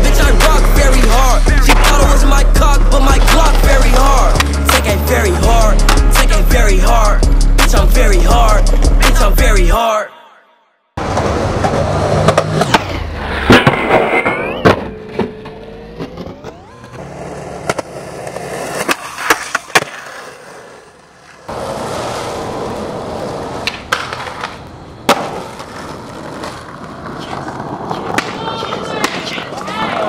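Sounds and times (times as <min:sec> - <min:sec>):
skateboard wheels rolling on concrete: 0:00.0 - 0:09.7, 0:11.0 - 0:30.0
skateboard popping and landing: 0:03.1 - 0:04.9, 0:11.0 - 0:30.0.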